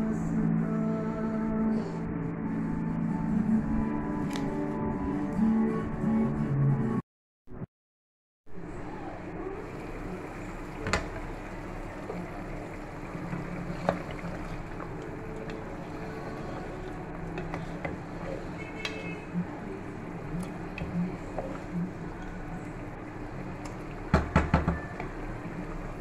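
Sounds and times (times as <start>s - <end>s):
low hum: 0.0s - 7.0s, 8.5s - 26.0s
curry bubbling in a pot: 9.6s - 26.0s.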